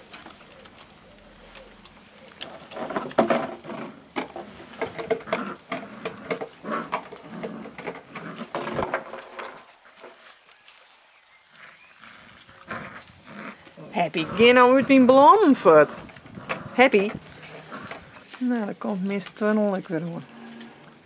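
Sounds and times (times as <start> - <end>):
puppies growling: 0.0 - 9.6, 11.5 - 18.5, 19.7 - 21.0.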